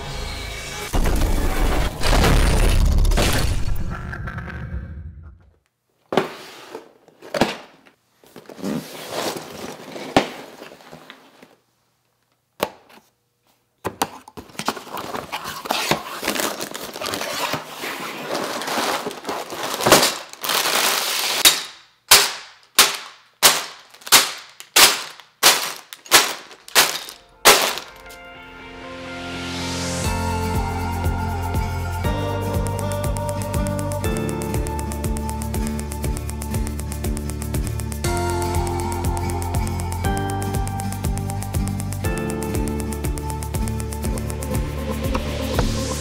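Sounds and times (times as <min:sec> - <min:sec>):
plastic bags dropping on tabletop: 0:07.2 - 0:08.0, 0:19.0 - 0:28.1
rustling: 0:14.5 - 0:21.5, 0:23.4 - 0:28.2.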